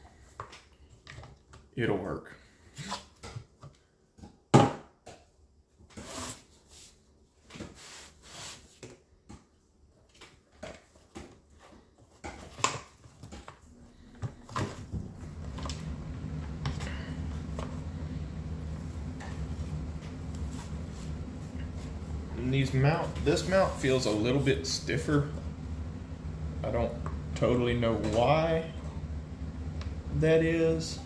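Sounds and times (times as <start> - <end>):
steady low hum: 13.6 - 31.0.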